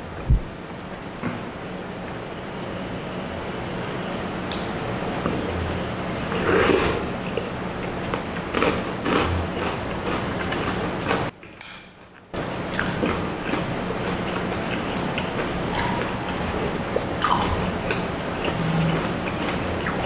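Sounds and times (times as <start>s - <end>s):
faint steady hum: 0.0s - 20.0s
person slurping and chewing noodles: 6.3s - 11.3s, 12.6s - 20.0s.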